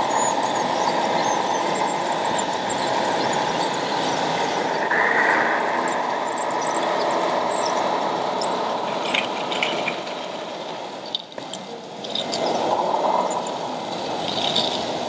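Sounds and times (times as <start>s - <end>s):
high whine: 0.0s - 9.4s
small high squeaks and clicks: 0.0s - 10.0s, 11.0s - 14.8s
model bulldozer running: 0.0s - 11.0s, 12.0s - 15.0s.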